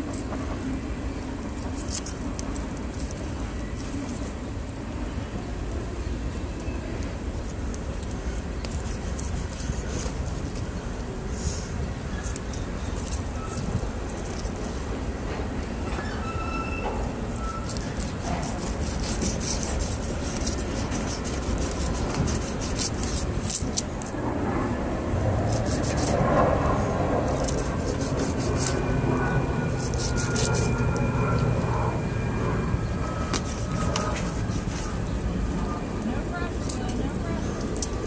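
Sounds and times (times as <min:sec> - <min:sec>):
knife crackling through fish scales: 0:07.5 - 0:10.8, 0:17.4 - 0:24.2, 0:25.4 - 0:26.3, 0:27.2 - 0:29.0, 0:29.7 - 0:31.6.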